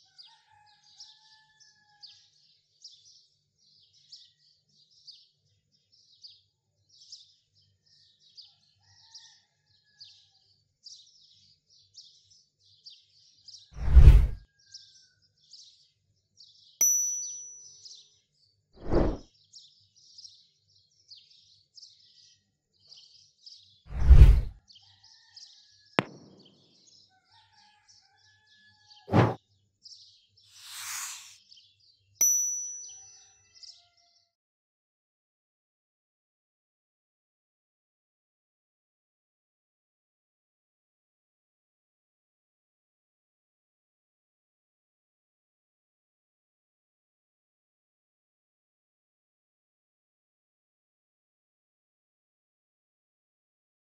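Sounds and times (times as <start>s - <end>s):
ringing dings: 16.8s - 17.8s, 32.2s - 33.2s
deep thumps: 26.0s - 26.5s, 29.1s - 29.4s
small bird chirping: 30.5s - 31.4s
short hiss: 30.6s - 31.4s.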